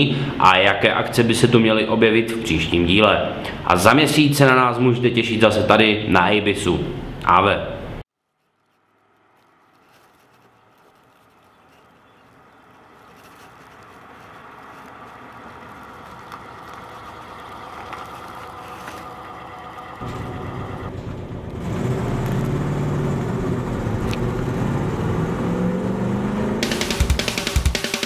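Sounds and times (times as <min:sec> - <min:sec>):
car engine approaching: 0:09.1 - 0:28.0.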